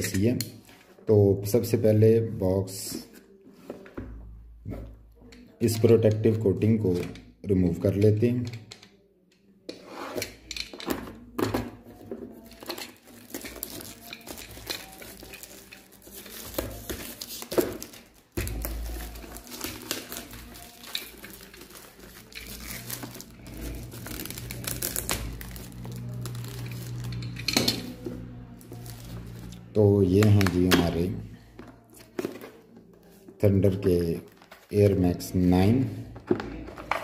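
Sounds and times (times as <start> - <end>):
plastic wrap crinkling and tearing: 12.4 - 30.9.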